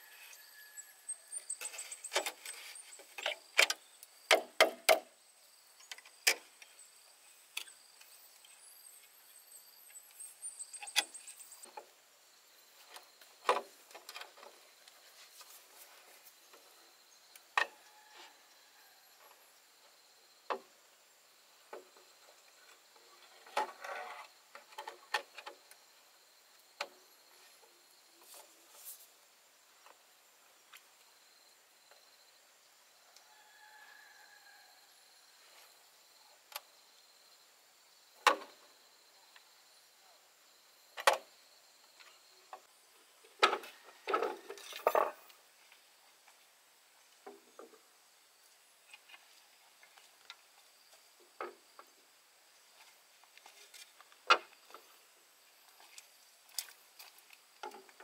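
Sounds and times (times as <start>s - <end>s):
bamboo poles knocking: 3.2s - 5.1s.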